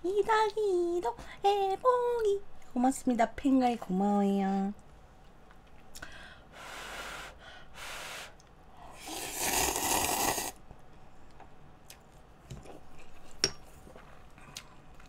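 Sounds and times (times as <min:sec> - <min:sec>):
noodles being slurped: 0:09.0 - 0:10.6.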